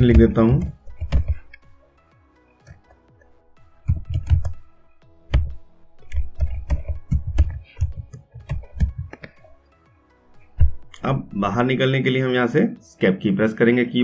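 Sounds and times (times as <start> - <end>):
typing on a computer keyboard: 0.0 - 1.5, 3.8 - 4.6, 5.3 - 9.3
faint background music: 0.0 - 14.0.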